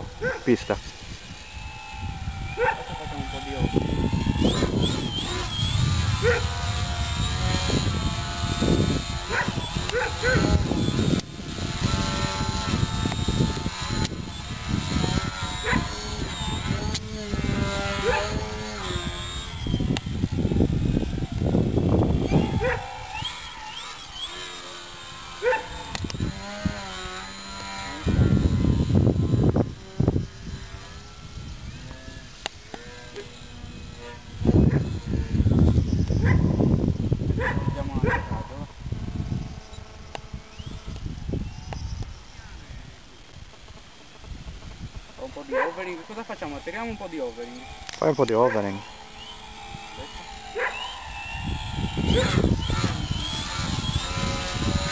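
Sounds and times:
model airplane motor whine: 0.0s - 54.9s.

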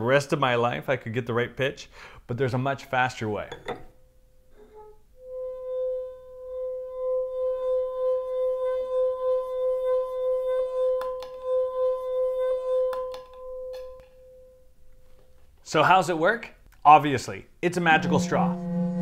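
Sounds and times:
wine glass rim singing: 4.6s - 14.7s, 17.9s - 19.0s.

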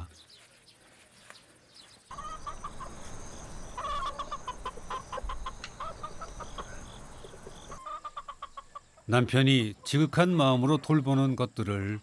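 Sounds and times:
chickens clucking: 2.1s - 11.3s.

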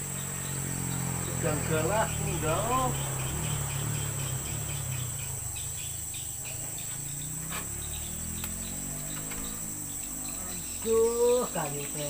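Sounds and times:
insects droning: 0.0s - 12.0s
faint clicks: 8.4s - 10.1s.

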